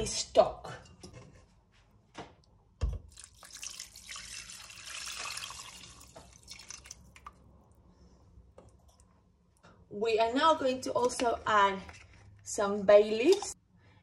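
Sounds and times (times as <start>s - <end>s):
liquid pouring into pot: 3.0s - 7.6s
drips: 3.1s - 7.7s.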